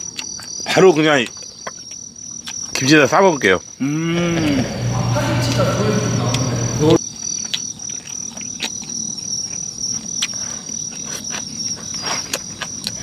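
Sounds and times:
crickets chirping: 0.0 - 13.0
low humming: 3.8 - 7.0.

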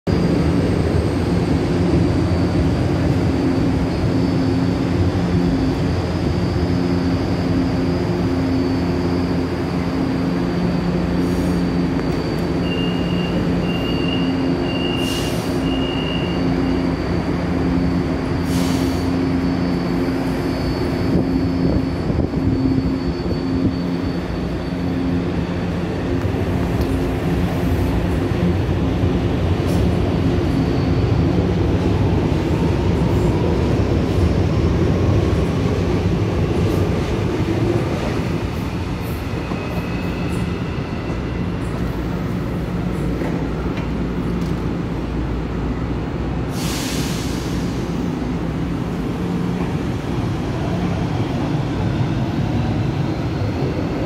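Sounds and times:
electric train hum and whine: 0.1 - 54.0
short beeps: 12.0 - 15.0.

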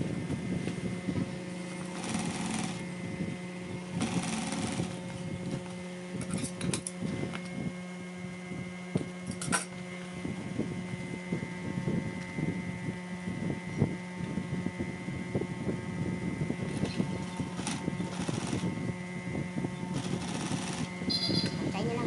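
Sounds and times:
sewing machine stitching: 1.9 - 2.8, 4.0 - 5.0, 17.5 - 18.6, 20.0 - 20.9.

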